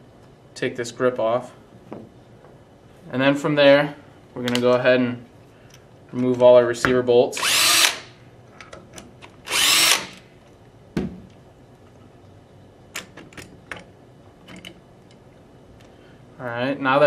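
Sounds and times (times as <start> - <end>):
cordless drill spinning: 7.4 - 8.1, 9.5 - 10.2.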